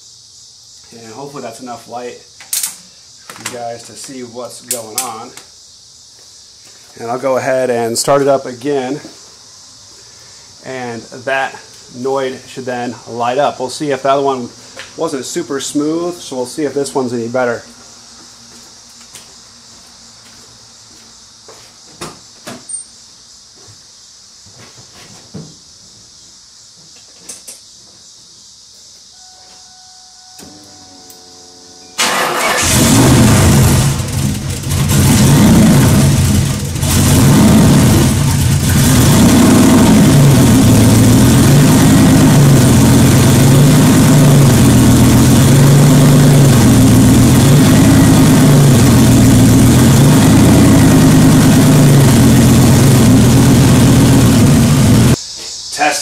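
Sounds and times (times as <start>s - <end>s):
car engine starting and idling: 31.9s - 55.2s.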